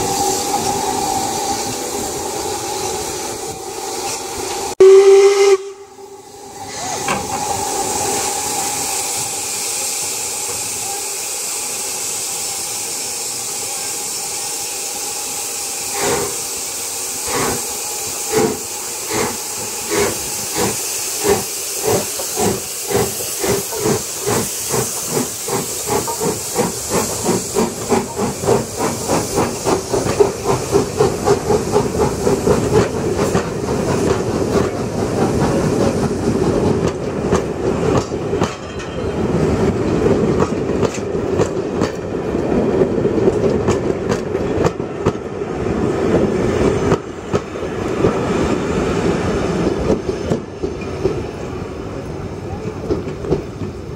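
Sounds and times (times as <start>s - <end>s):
steam hissing: 0.0s - 53.9s
steam locomotive exhaust beats: 0.0s - 53.9s
wheels clacking over rail joints: 21.8s - 45.3s.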